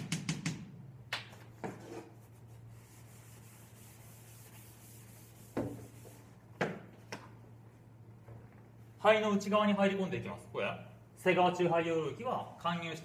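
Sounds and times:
eraser scraping blackboard: 1.6 - 6.3.

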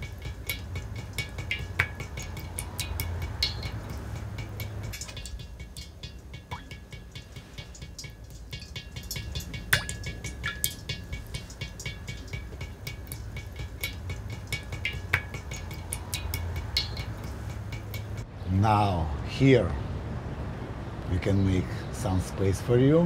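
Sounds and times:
ringing plinks: 0.0 - 18.3
water dripping into metal bowl: 0.0 - 18.3
low steady hum: 0.0 - 19.2.

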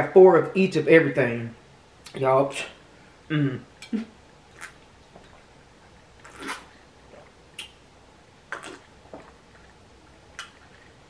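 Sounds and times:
person gulping a drink: 6.2 - 7.8, 8.5 - 11.0.

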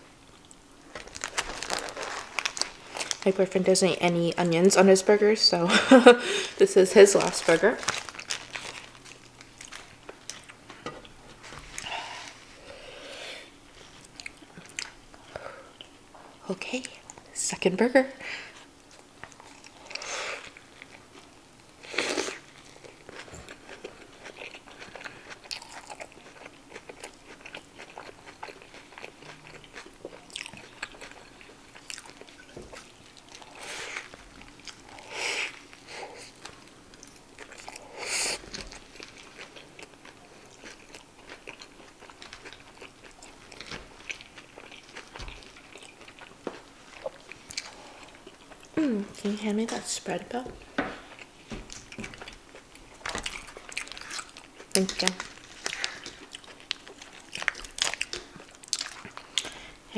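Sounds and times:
biting and chewing food: 0.4 - 3.3, 7.1 - 12.0, 22.2 - 49.3, 50.6 - 59.6.

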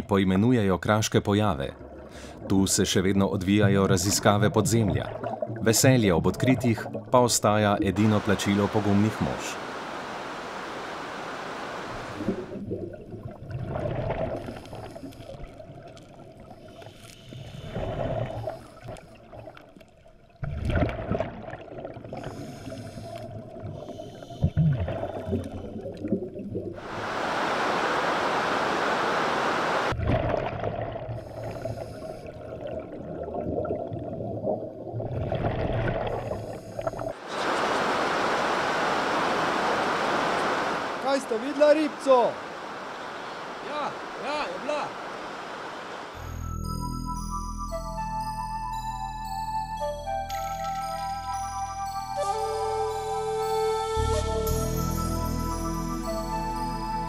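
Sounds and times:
underwater bubbling and gurgling: 1.5 - 9.4, 11.9 - 27.1, 29.9 - 37.4
steady rushing water: 5.0 - 12.6, 26.7 - 30.4, 37.1 - 46.2.

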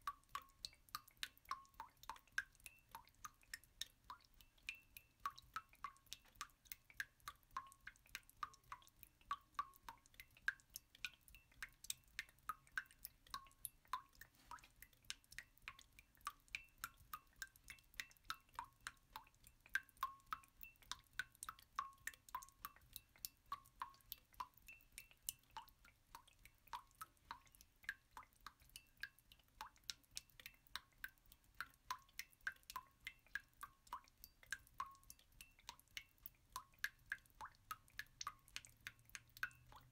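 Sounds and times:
water drops dripping: 0.0 - 39.9.

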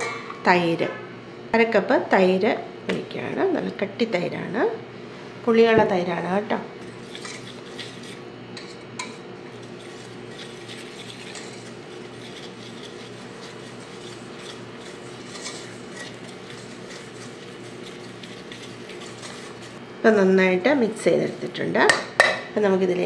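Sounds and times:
whisk scraping steel bowl: 6.8 - 19.8.

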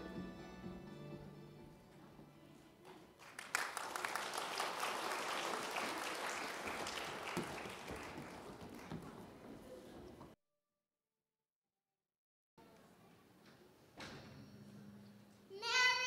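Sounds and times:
audience applauding: 3.2 - 9.4.

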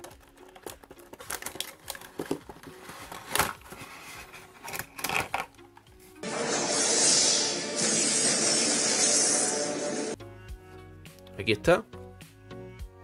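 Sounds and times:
sharp plastic crackles: 0.0 - 3.8
cardboard and plastic rustling: 0.0 - 5.8.

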